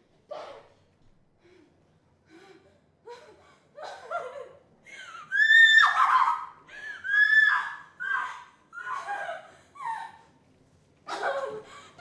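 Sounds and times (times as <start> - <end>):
woman shrieking: 5.2 - 10.2.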